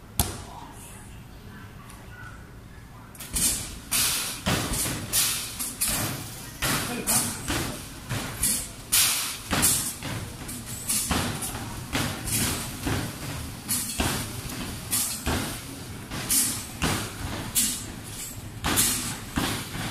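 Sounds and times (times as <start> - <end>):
balls banging on backboard and rim: 9.5 - 10.4, 11.1 - 13.4.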